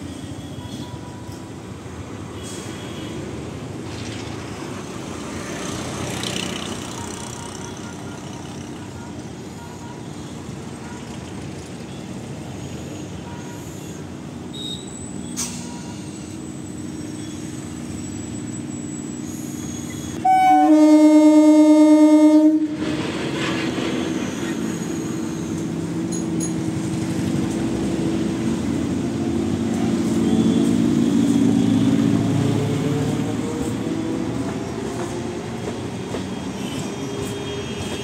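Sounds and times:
train running past: 0.0 - 14.5, 15.3 - 38.0
train horn blast: 20.2 - 22.8.

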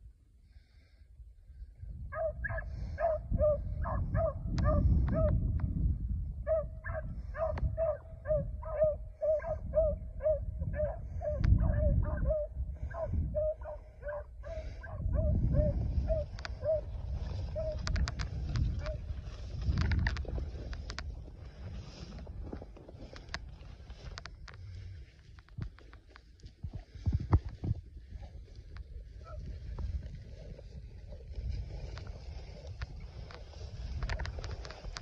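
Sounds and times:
dogs baying: 2.1 - 5.3, 6.5 - 16.9.

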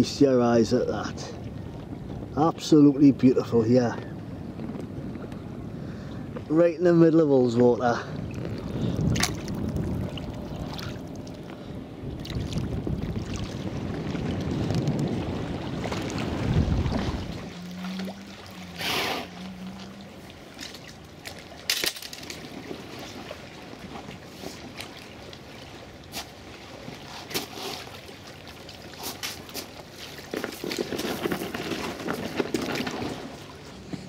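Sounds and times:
water sloshing around kayak: 7.4 - 34.0.

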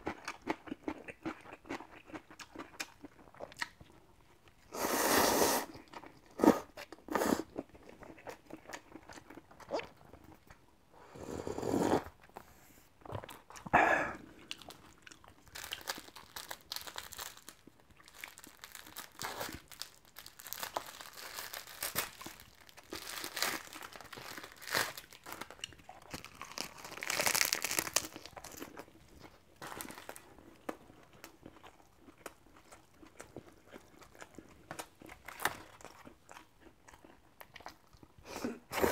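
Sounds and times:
chewing: 0.0 - 4.7, 5.7 - 10.6, 12.2 - 19.7, 25.2 - 38.9
slurping noodles: 4.7 - 5.8, 11.0 - 12.2
plastic wrapper crackling and tearing: 15.4 - 28.9, 29.6 - 30.8.

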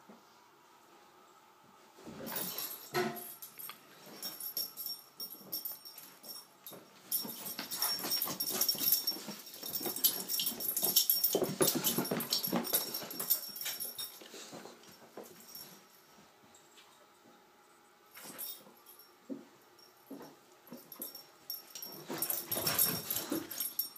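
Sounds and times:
dogs playing: 2.0 - 17.0, 19.8 - 23.9.

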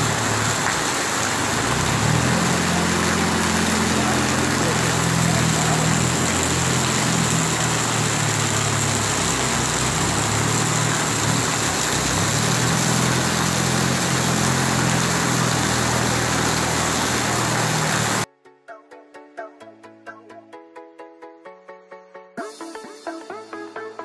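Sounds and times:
rain hiss: 0.0 - 18.3
road noise: 0.0 - 18.3
vehicle engine humming: 0.0 - 18.3.

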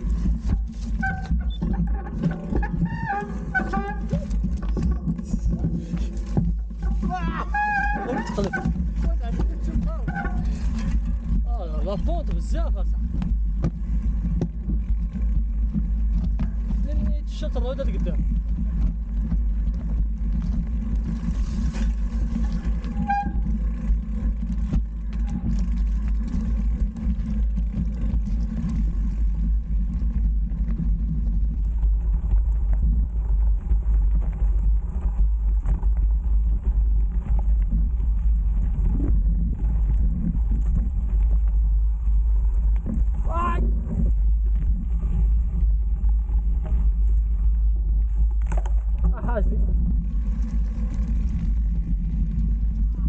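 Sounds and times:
bike clicks and rattles: 0.0 - 53.0
bike tyres rumbling on dirt: 0.0 - 53.0.

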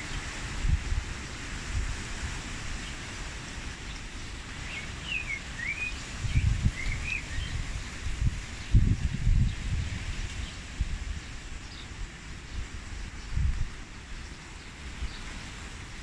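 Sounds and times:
wind rushing through foliage: 0.0 - 16.0
wind buffeting microphone: 0.2 - 2.4, 6.0 - 13.8.

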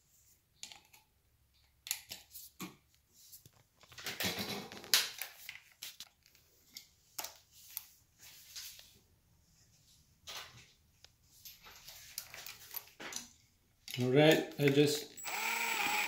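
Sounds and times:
screwdriver clicking and scraping: 13.9 - 16.0.

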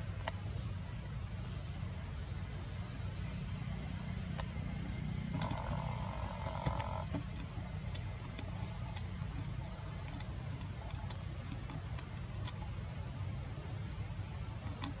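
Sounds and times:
faint clicks: 5.4 - 12.7, 14.6 - 15.0.

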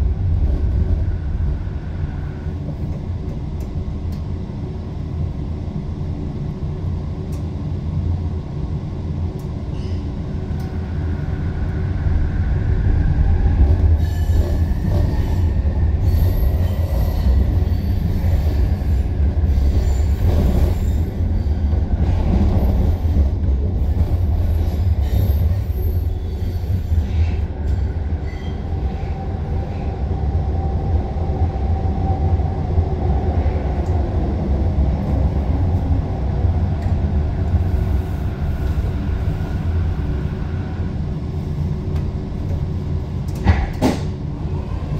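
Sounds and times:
train low rumble: 0.0 - 44.9
train wheels squealing: 9.7 - 10.2, 14.0 - 21.7, 24.6 - 29.9.

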